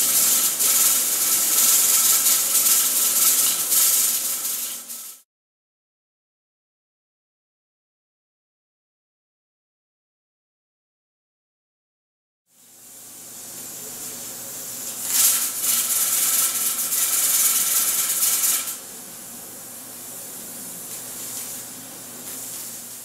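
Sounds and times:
steam hissing from vent: 0:00.0 - 0:05.2, 0:12.6 - 0:18.9, 0:19.8 - 0:23.0.

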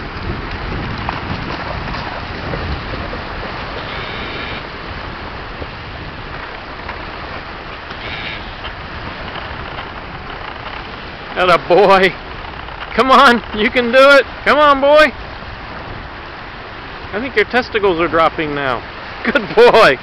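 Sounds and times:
waves breaking on shore: 0:00.0 - 0:20.0
wind buffeting microphone: 0:00.0 - 0:20.0.

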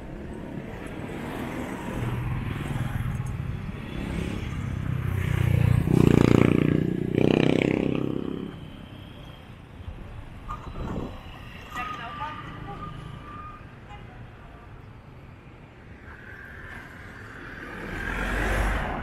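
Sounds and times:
motorcycle engine passing by: 0:05.1 - 0:08.6.

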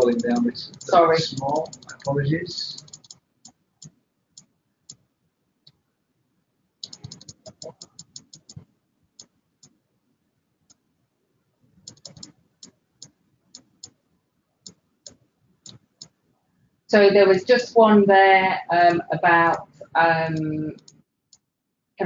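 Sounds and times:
computer mouse clicks: 0:00.0 - 0:02.2, 0:02.8 - 0:05.0, 0:06.8 - 0:08.6, 0:11.9 - 0:14.0, 0:14.6 - 0:16.2, 0:20.7 - 0:21.4
keyboard typing: 0:00.0 - 0:04.0, 0:06.8 - 0:08.6, 0:11.8 - 0:14.0, 0:20.4 - 0:21.4.

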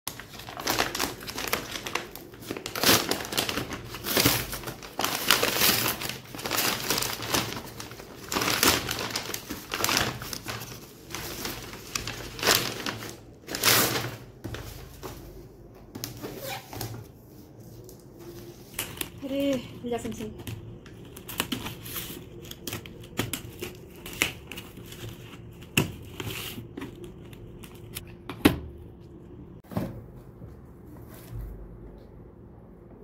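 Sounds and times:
paper bag crinkling: 0:00.1 - 0:15.4.

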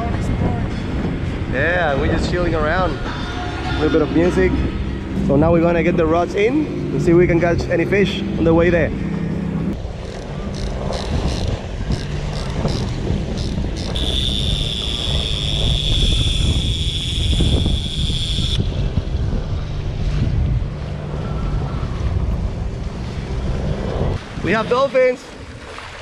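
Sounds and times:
wind buffeting microphone: 0:00.0 - 0:26.0
fishing reel clicker ticking: 0:10.0 - 0:15.4
rushing water: 0:18.9 - 0:26.0.

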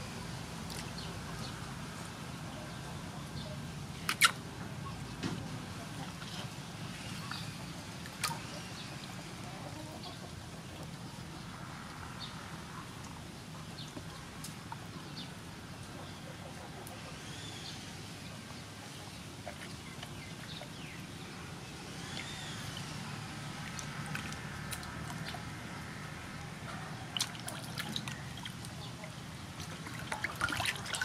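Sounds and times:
hands rinsing squid in water: 0:22.7 - 0:25.5, 0:29.6 - 0:31.0.

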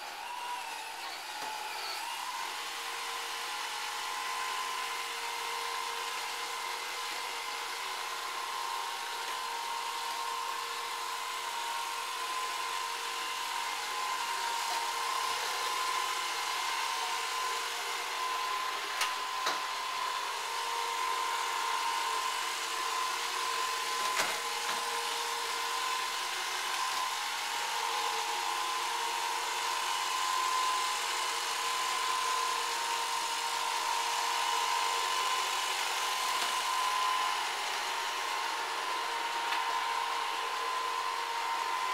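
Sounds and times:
robot vacuum motor whine: 0:00.0 - 0:41.9.

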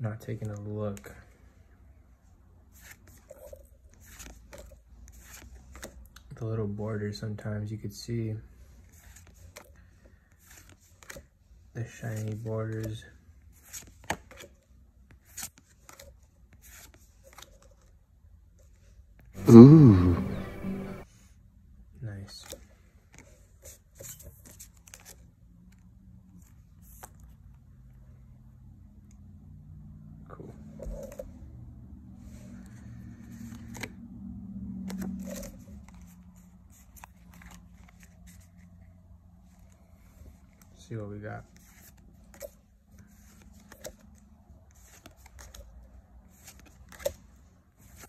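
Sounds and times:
cards swishing against cards: 0:02.7 - 0:06.1, 0:08.8 - 0:11.4, 0:12.0 - 0:18.0, 0:32.2 - 0:34.0, 0:34.8 - 0:38.8, 0:41.5 - 0:48.0.

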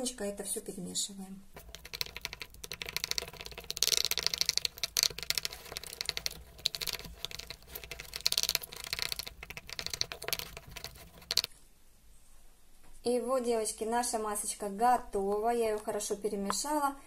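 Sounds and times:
wooden spatula scraping glass: 0:01.6 - 0:11.5.

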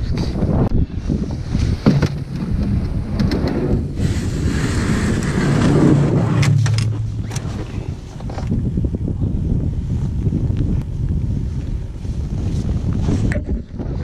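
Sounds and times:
wind rumbling on microphone: 0:00.0 - 0:14.0
gear knocking in plastic sled: 0:01.3 - 0:08.7.

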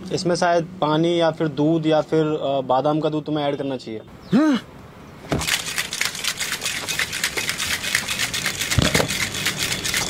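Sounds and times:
rapid clicking rattle: 0:05.4 - 0:10.0.

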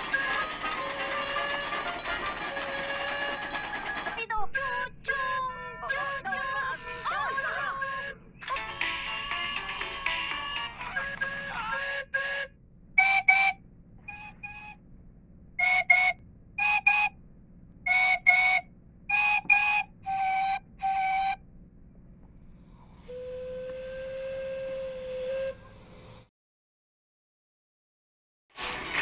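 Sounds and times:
steam locomotive whistle: 0:00.0 - 0:04.1, 0:11.0 - 0:14.8, 0:15.6 - 0:17.2, 0:17.9 - 0:21.4, 0:23.0 - 0:26.3.

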